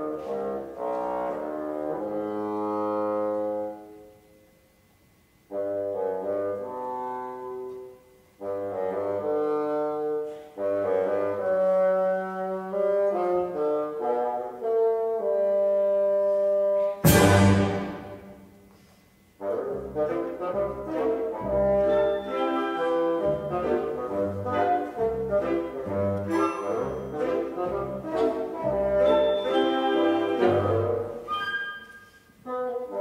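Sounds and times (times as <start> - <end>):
wind band playing: 0.0 - 4.0, 5.5 - 7.8, 8.4 - 18.6, 19.4 - 33.0
cymbal crash: 17.0 - 18.6.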